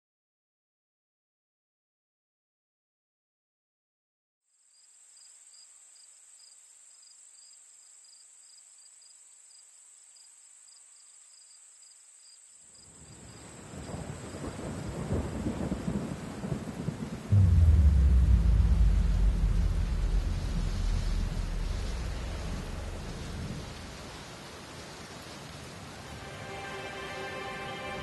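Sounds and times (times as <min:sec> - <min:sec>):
thunder clap and rumble: 0:14.7 - 0:24.3
rain hissing: 0:17.3 - 0:28.0.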